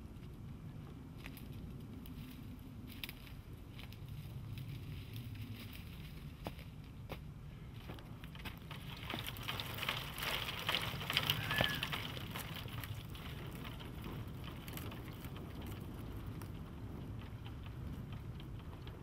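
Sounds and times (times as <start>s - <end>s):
steady low rumble: 0.0s - 19.0s
footsteps crunching through dry leaves: 7.8s - 12.2s.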